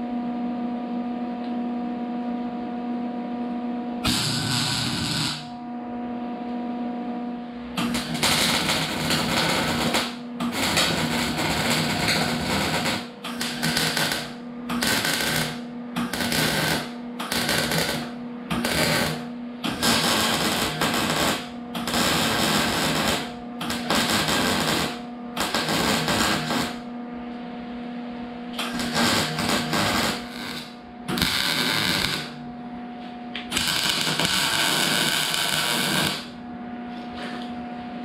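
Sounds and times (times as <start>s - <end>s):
steady hum: 0.0s - 38.0s
welding arc crackling: 4.0s - 5.6s, 7.8s - 26.8s, 28.6s - 32.4s, 33.5s - 36.3s.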